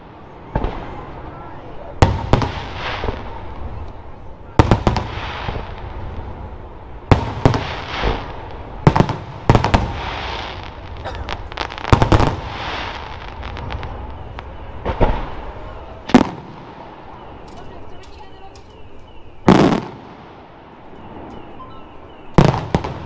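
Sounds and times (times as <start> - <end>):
firework bangs: 0.0 - 23.0
firework hiss: 4.6 - 17.4.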